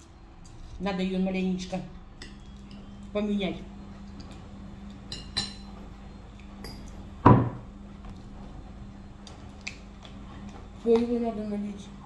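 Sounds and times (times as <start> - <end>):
steady low hum: 0.0 - 12.0
loud knock on table: 7.2 - 7.6.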